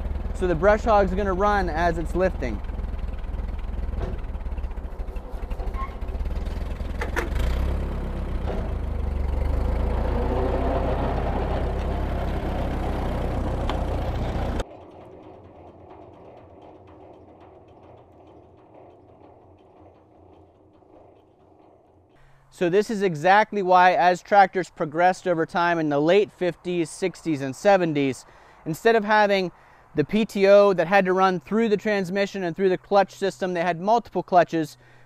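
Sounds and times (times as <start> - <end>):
low hum: 0.0 - 22.8
tractor engine running: 0.0 - 34.8
rotary cutter blades spinning: 0.4 - 22.2.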